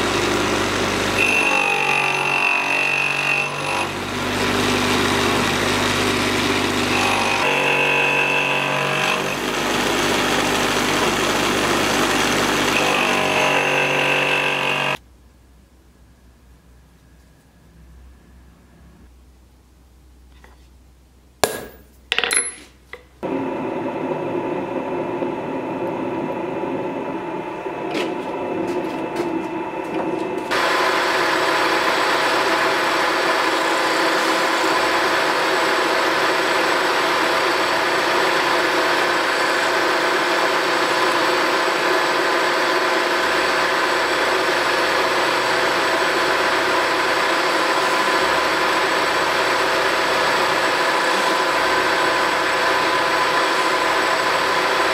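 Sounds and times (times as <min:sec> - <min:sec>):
end mill cutting steel: 0:00.0 - 0:15.0, 0:30.4 - 0:54.9
milling machine whine: 0:00.0 - 0:15.0, 0:23.2 - 0:54.9
metal taps: 0:21.4 - 0:23.1.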